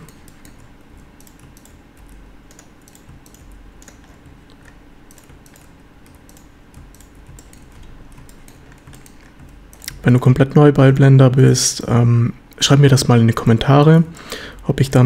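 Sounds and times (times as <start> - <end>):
keyboard and mouse clicking: 0.0 - 10.0
low steady hum: 0.0 - 15.0.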